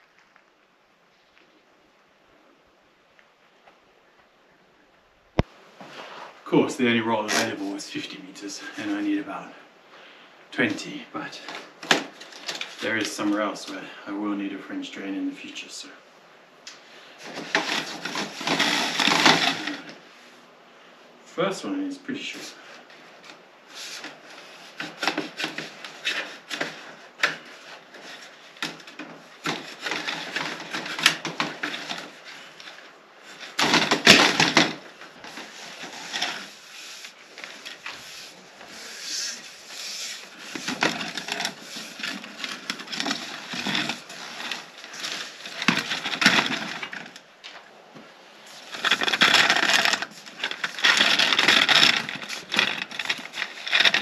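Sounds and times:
plastic drain pipe rubbing and crackling: 17.2s - 20.0s, 23.8s - 47.2s, 48.4s - 54.0s.

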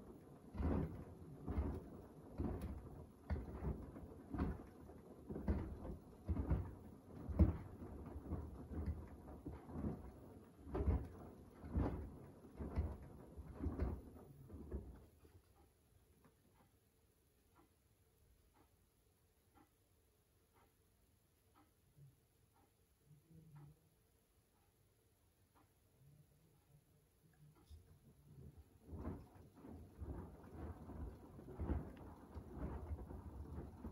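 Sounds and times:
water and laundry sloshing and thudding: 0.0s - 15.4s, 28.4s - 33.9s
washing machine drum tumbling laundry: 0.0s - 15.6s, 27.6s - 33.9s.

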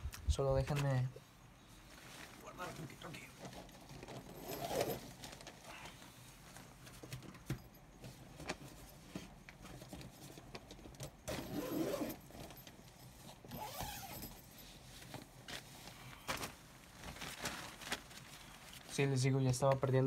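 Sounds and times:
rustling: 1.6s - 20.0s.

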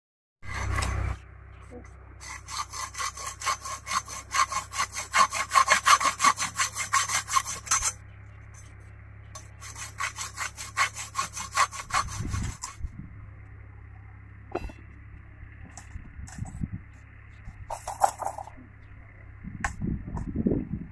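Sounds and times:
hacksaw cutting metal rod: 0.5s - 1.1s, 2.2s - 8.0s, 9.4s - 12.8s, 17.7s - 18.4s.

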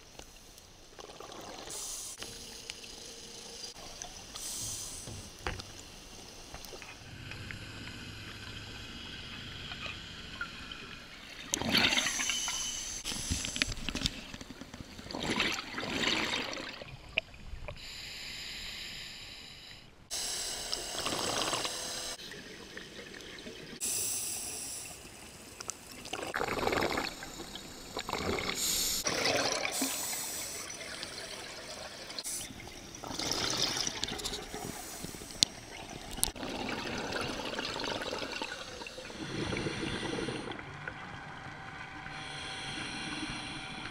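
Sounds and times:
bubbling regulator exhaust: 25.6s - 43.9s.

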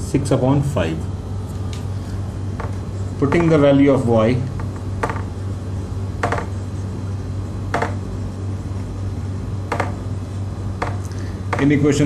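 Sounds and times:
marker tapping on whiteboard: 2.6s - 3.6s, 4.6s - 5.3s, 6.2s - 6.6s, 7.7s - 8.0s, 9.7s - 10.0s, 10.8s - 11.8s.

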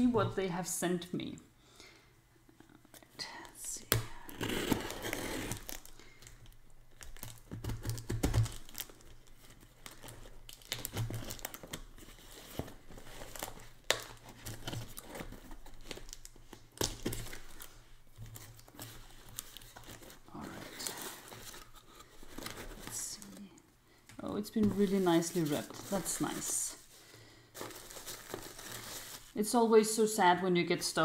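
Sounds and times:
packing tape tearing: 3.9s - 23.4s, 27.6s - 29.4s.

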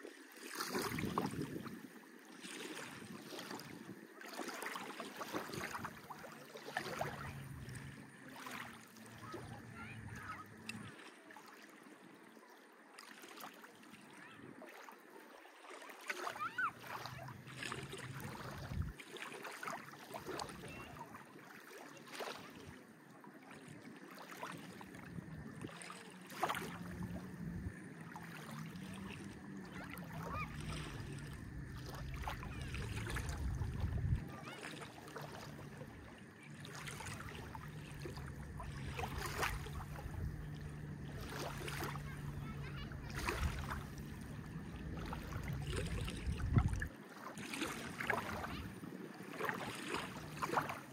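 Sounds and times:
small waves lapping: 0.0s - 50.9s
low engine hum: 6.8s - 11.0s, 26.4s - 47.0s.

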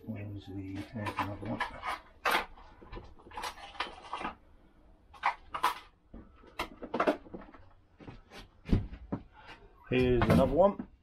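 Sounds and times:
rummaging through small parts: 0.7s - 4.5s, 5.1s - 7.8s.

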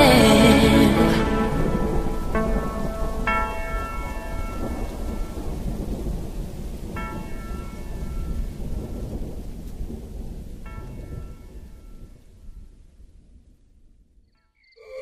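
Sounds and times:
ringing chord: 0.0s - 5.5s
rolling thunder: 0.0s - 14.0s
rain: 0.0s - 14.1s.

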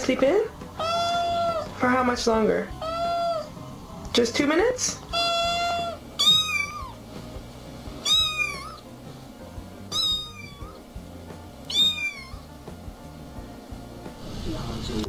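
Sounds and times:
cat meowing: 0.8s - 1.8s, 2.7s - 3.6s, 5.1s - 7.0s, 8.0s - 8.9s, 9.9s - 10.8s, 11.6s - 12.6s.

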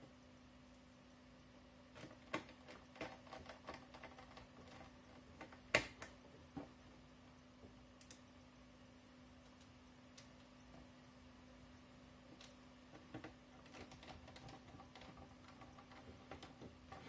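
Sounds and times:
faint steady hum: 0.0s - 17.0s
small parts clicking and tapping: 2.0s - 6.2s, 12.3s - 17.0s.

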